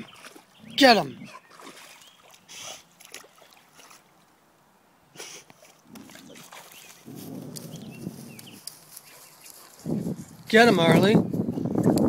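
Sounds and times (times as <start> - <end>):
dog splashing in water: 0.0 - 0.5, 1.3 - 4.1, 5.6 - 7.4.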